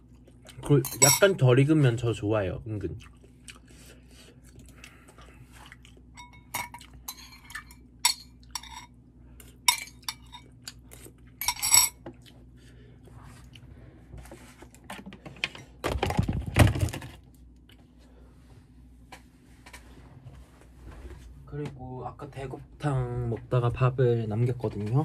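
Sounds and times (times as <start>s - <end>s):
metal chopsticks clinking on bowl: 0.8s - 1.3s.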